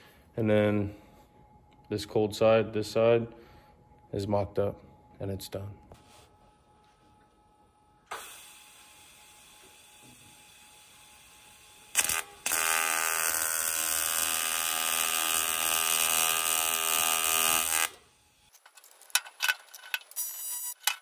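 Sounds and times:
welding arc buzzing: 8.1s - 18.6s, 20.2s - 20.8s.

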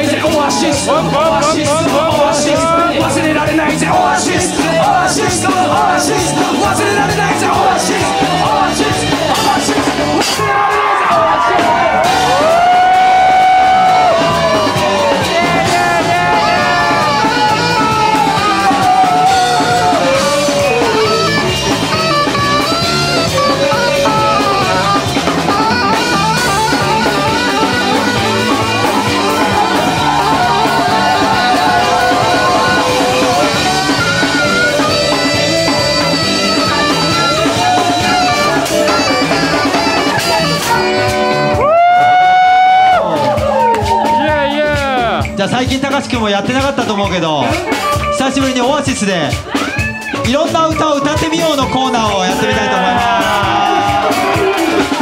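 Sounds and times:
live band playing instrumental: 0.0s - 55.0s
saxophone melody: 12.0s - 43.7s.

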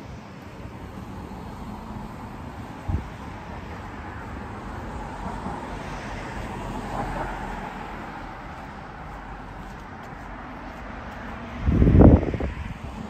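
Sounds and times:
car passing: 0.0s - 13.0s
wind on microphone: 2.8s - 3.2s, 11.3s - 13.0s.

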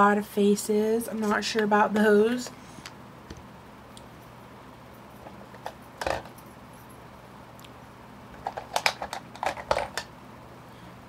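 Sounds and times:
small hard clicks and clatters: 5.6s - 6.4s, 8.4s - 10.1s.

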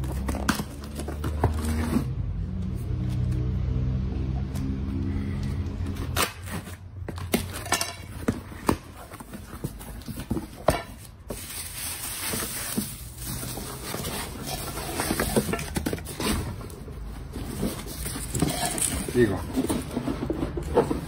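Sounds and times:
cardboard box clicks and knocks: 0.0s - 2.0s, 6.5s - 11.5s
bubble wrap rustling: 9.0s - 20.7s.

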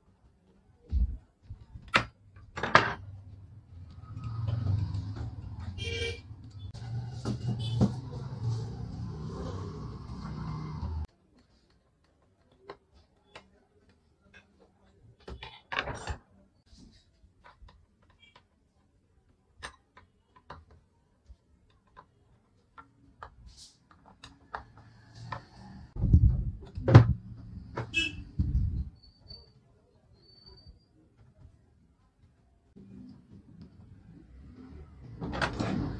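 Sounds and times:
wooden knocks and thuds: 26.0s - 27.9s.

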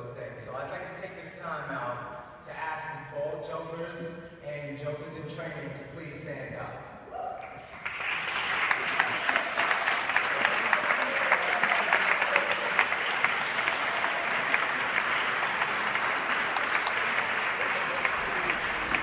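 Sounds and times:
audience applauding: 7.6s - 19.0s.

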